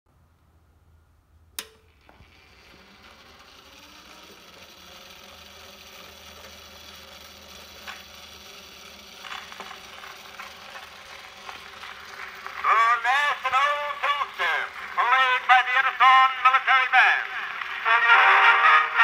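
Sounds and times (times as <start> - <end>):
phonograph switch click: 1.6 - 1.9
phonograph motor whirring: 1.6 - 19.0.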